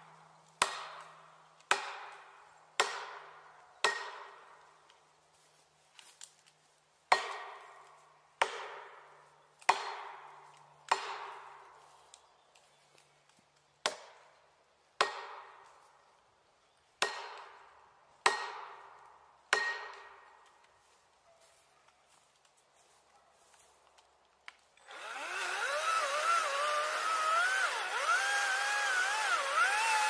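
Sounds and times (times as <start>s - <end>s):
hammer striking metal wedge: 3.8s - 4.3s, 19.5s - 20.1s.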